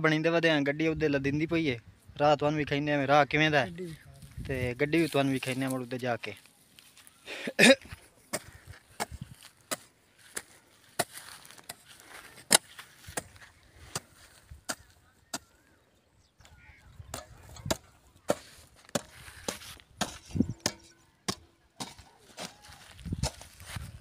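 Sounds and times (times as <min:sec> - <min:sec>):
hoe chopping into hard soil: 0:12.4 - 0:14.1, 0:17.1 - 0:23.6.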